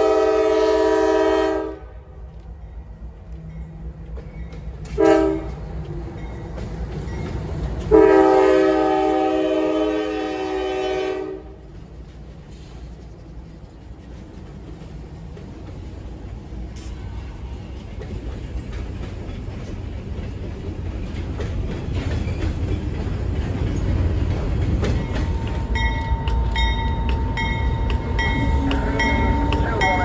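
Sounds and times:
diesel locomotive engine rumble: 0.0s - 30.0s
freight train cars rumbling on rails: 0.0s - 30.0s
locomotive bell ringing: 25.0s - 30.0s.

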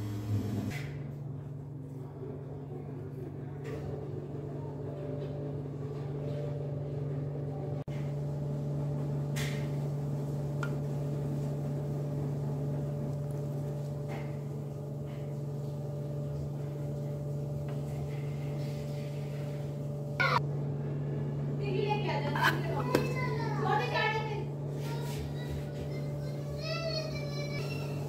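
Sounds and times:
low motor hum: 0.0s - 28.0s.

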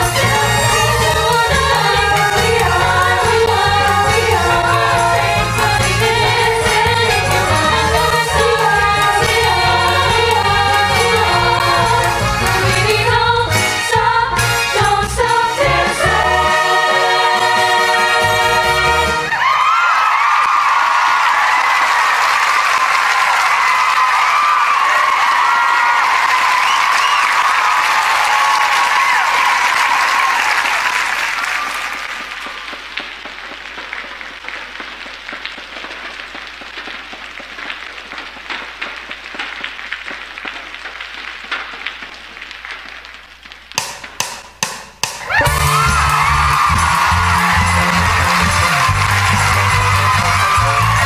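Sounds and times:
loud music: 0.0s - 19.4s, 45.2s - 51.0s
audience cheering and whooping: 19.1s - 32.8s, 45.2s - 51.0s
applause: 19.3s - 43.7s, 45.3s - 51.0s.

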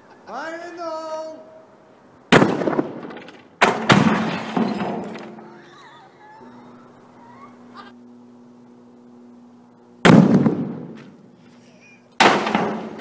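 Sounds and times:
airbag bang: 10.0s - 11.1s, 12.2s - 13.0s.

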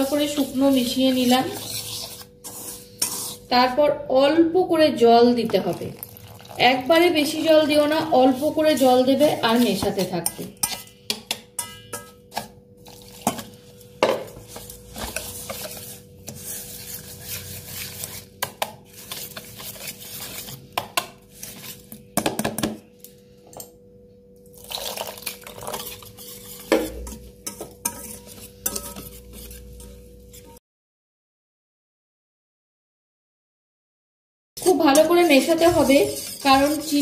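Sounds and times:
batter stirred in bowl: 0.0s - 3.8s, 5.4s - 22.1s, 24.6s - 30.6s, 34.6s - 37.0s.

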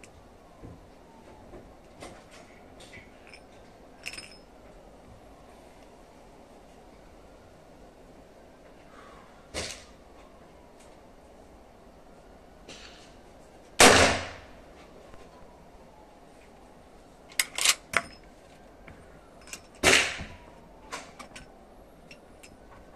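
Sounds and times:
gunshots: 13.8s - 14.4s.

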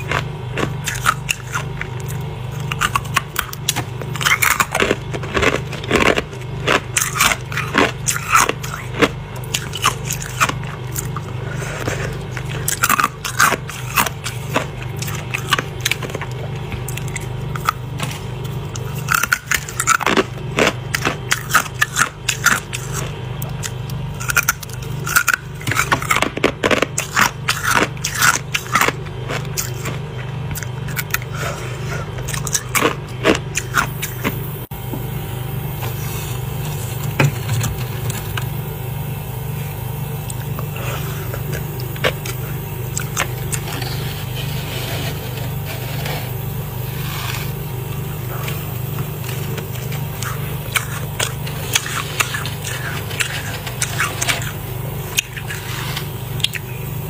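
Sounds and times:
frost being chewed: 0.0s - 34.7s, 35.7s - 57.0s
steady low hum: 0.0s - 57.0s
fingers scraping frost: 43.6s - 47.6s.

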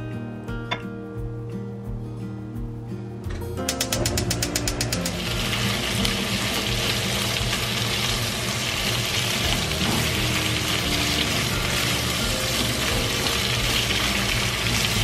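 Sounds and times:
background music: 0.0s - 15.0s
vegetables sizzling in hot oil: 4.0s - 15.0s.

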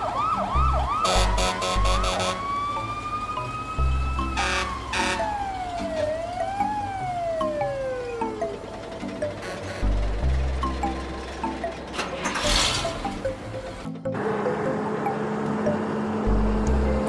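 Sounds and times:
cartoon siren wailing: 0.0s - 8.6s.

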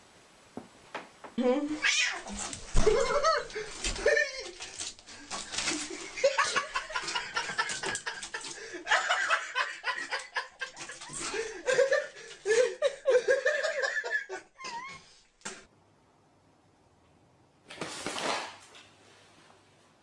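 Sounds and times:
human laughter: 2.8s - 4.8s, 5.7s - 15.1s.

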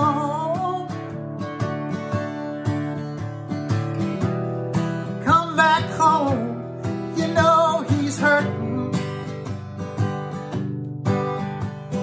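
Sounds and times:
man singing: 0.0s - 1.2s, 4.8s - 9.5s
acoustic guitar strummed and picked: 0.0s - 12.0s.

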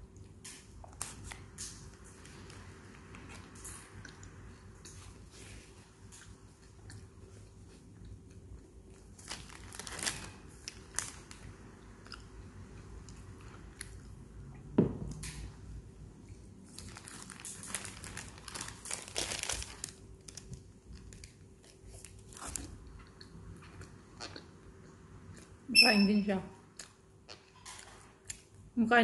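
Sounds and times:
chewing: 3.2s - 9.1s
paper wrapper crinkling: 9.2s - 11.4s, 16.7s - 22.7s.

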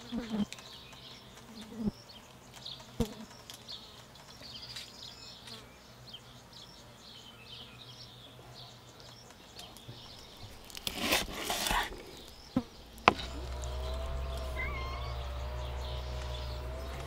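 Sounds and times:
knife scraping fish on board: 10.7s - 12.0s
faint high chirping: 12.1s - 17.0s.

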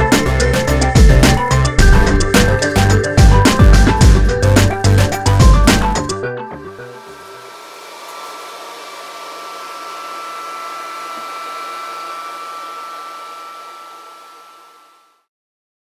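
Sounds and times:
mid-pitched tone: 1.8s - 4.5s.

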